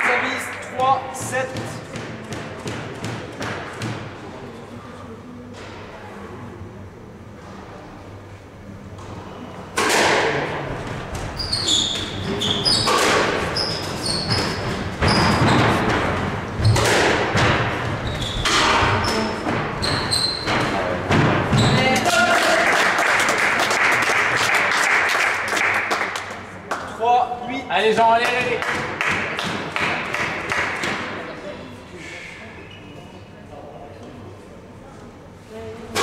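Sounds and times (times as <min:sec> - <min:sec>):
sneakers squeaking on wooden floor: 0:11.3 - 0:15.8, 0:17.8 - 0:20.8, 0:21.5 - 0:22.0
crowd noise: 0:14.6 - 0:36.0.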